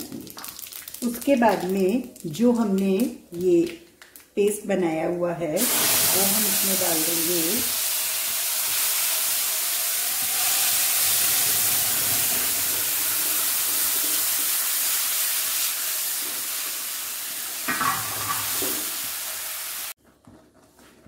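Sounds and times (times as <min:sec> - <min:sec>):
pulp sizzling in hot oil: 0:05.6 - 0:20.0.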